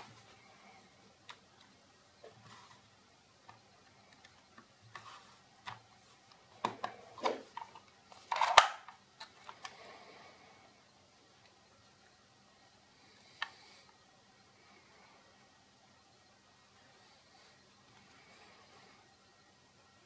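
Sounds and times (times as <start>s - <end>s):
sharp plastic snap: 8.3s - 9.0s.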